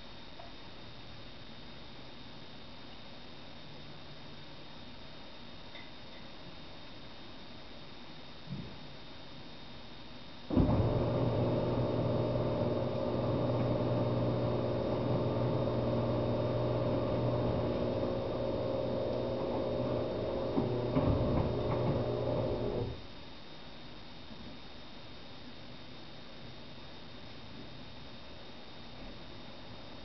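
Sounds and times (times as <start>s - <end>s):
appliance motor humming: 10.5s - 23.0s
clicks: 12.6s - 23.0s.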